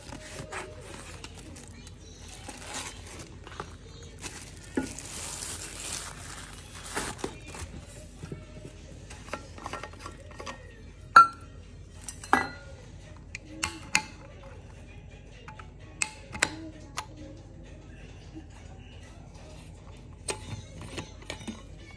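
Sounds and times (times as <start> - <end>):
plastic wrap rustling: 0.0 - 8.4.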